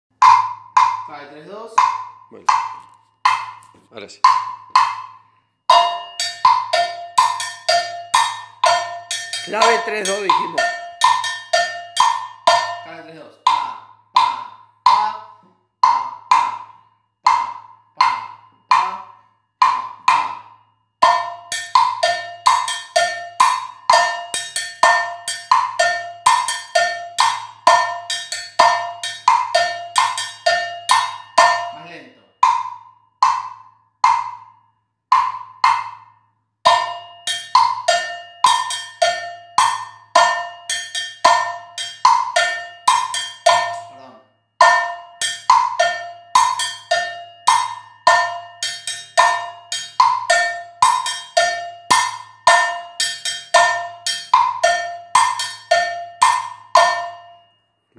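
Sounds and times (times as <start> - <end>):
cowbell ringing pattern: 0.1 - 57.7
plastic jam block struck with stick: 0.2 - 1.1.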